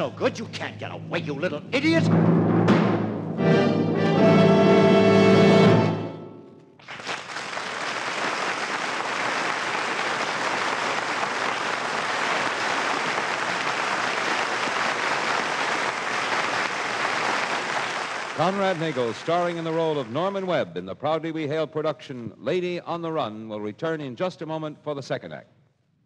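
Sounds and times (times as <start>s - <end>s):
orchestral chord: 1.2s - 6.6s
audience applause: 6.8s - 20.6s.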